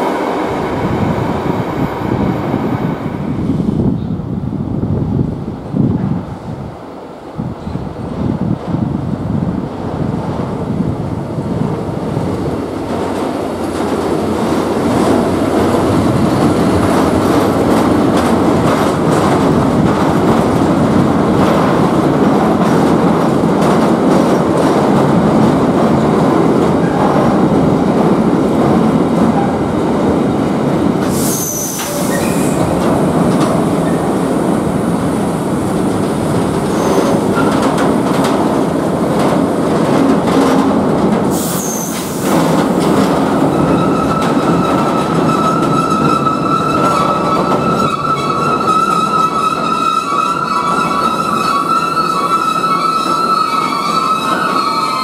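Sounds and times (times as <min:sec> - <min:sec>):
train wheels rumbling on rails: 0:00.0 - 0:55.0
brake squeal: 0:31.2 - 0:32.6.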